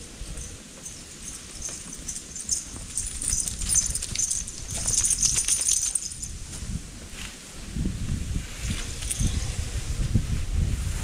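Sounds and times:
wind on microphone: 2.6s - 11.0s.

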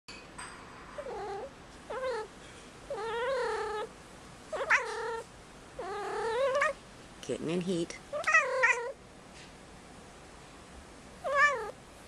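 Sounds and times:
cat yowling: 1.0s - 2.3s, 2.9s - 3.9s, 4.5s - 6.8s, 8.1s - 9.0s, 11.2s - 11.8s.

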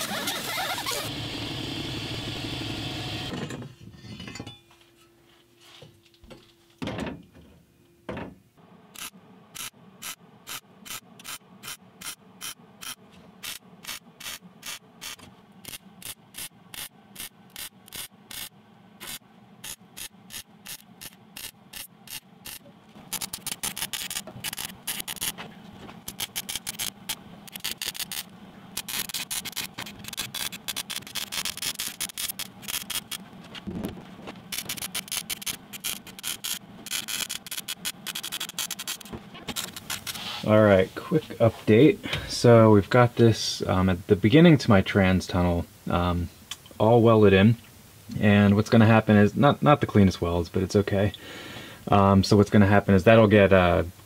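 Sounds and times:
hand-held power tool running: 9.0s - 25.4s, 26.0s - 33.2s
welding arc crackle: 9.0s - 25.4s, 26.0s - 33.2s, 34.5s - 40.1s.

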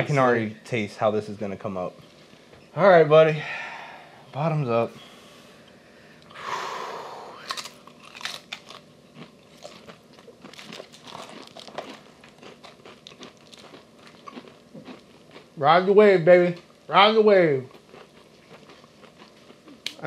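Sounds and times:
breathy hiss: 3.3s - 4.3s, 4.9s - 7.6s
chip crunching and chewing: 7.4s - 15.6s, 17.6s - 20.0s.

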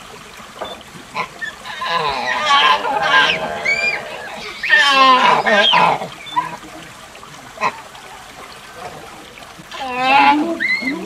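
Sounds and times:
monkey calling: 0.6s - 6.8s, 9.7s - 11.0s.

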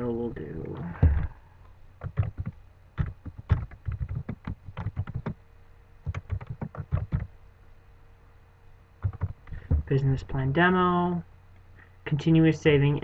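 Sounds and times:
typing on computer keyboard: 2.0s - 5.4s, 6.1s - 7.3s, 9.0s - 9.8s.

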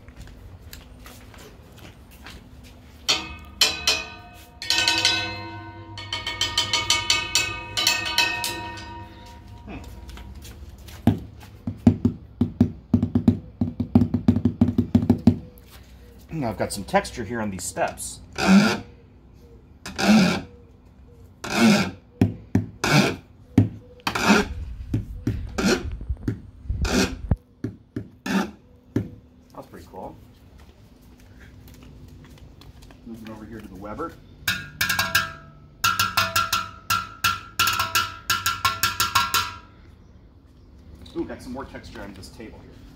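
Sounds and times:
drumsticks tapping metal railing: 3.1s - 10.5s, 34.4s - 39.7s.

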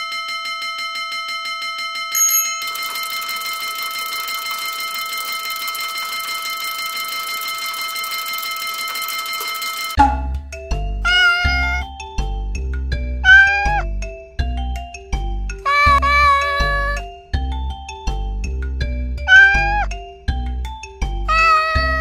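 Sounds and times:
railway crossing bell ringing: 0.0s - 10.0s
high ding: 2.0s - 10.2s.

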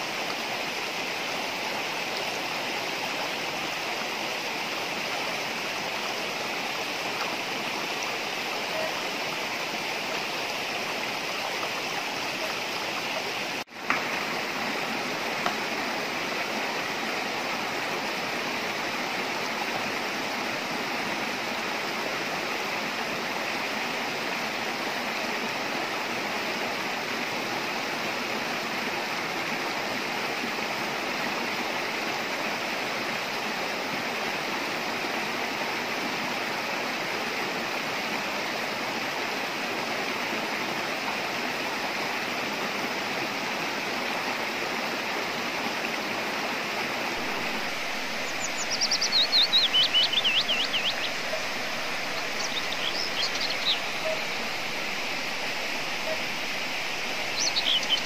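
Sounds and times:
stream rushing over stones: 0.0s - 58.0s
bird chirping: 47.4s - 54.7s, 56.0s - 58.0s.

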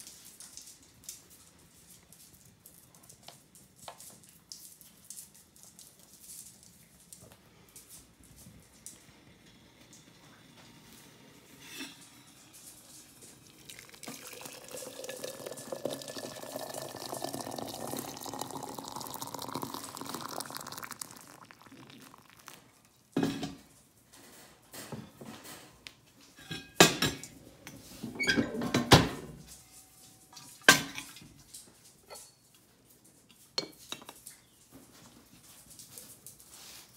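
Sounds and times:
water pouring into teapot: 12.6s - 23.1s.

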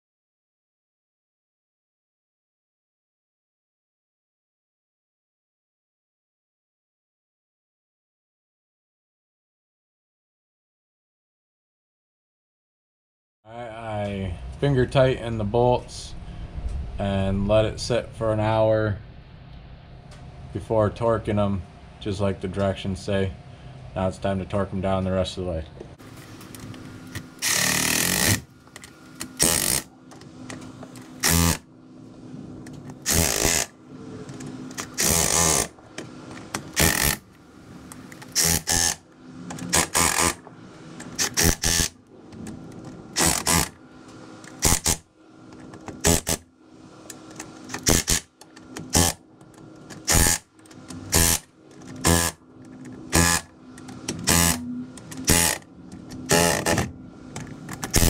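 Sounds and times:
cordless ratchet running: 27.4s - 29.9s, 31.2s - 31.6s, 33.0s - 33.7s, 34.7s - 35.7s, 36.6s - 37.2s, 38.2s - 39.0s, 39.6s - 40.4s, 41.1s - 41.9s, 43.2s - 43.8s, 44.6s - 45.0s, 46.0s - 46.4s, 47.3s - 49.2s, 50.0s - 52.4s, 53.1s - 53.5s, 54.2s - 55.7s, 56.3s - 56.8s, 57.4s - 58.0s.

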